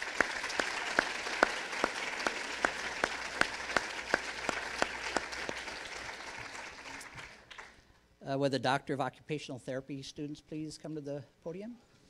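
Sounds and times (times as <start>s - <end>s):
audience applauding: 0.0s - 7.8s
close hands clapping: 0.0s - 7.9s.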